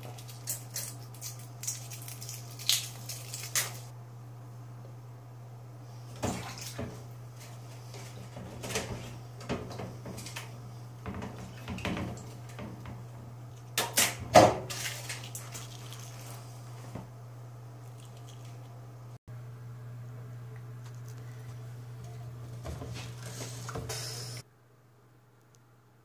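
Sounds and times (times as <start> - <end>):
eggshell crackling: 0.0 - 3.9
steady low hum: 0.0 - 26.0
wet rubbing: 14.8 - 16.8.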